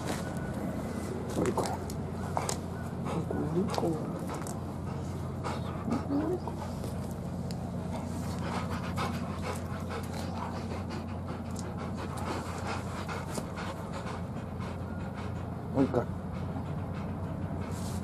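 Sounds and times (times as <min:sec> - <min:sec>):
dog panting: 0:00.0 - 0:18.0
dog whimpering: 0:05.4 - 0:06.8.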